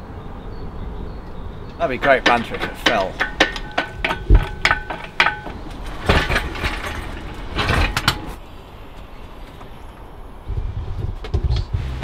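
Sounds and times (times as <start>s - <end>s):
sharp metallic clicks: 1.7s - 6.2s
chain rattling: 2.0s - 8.4s.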